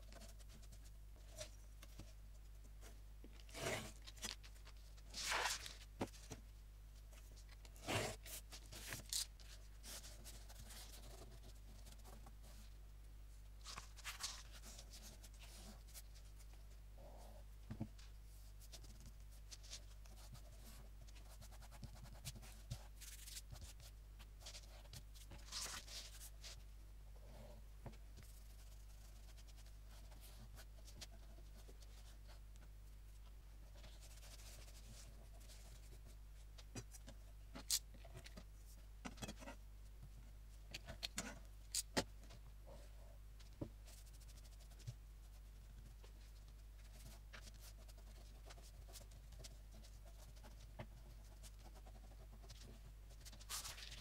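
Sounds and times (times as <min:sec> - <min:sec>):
low steady hum: 0:00.0 - 0:54.0
hands scratching and brushing paper: 0:03.4 - 0:05.9, 0:53.2 - 0:54.0.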